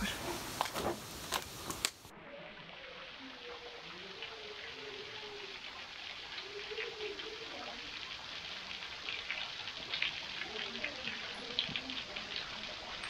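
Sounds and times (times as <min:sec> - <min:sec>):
soft hiss: 0:00.0 - 0:13.0
water dripping onto stone: 0:02.9 - 0:13.0.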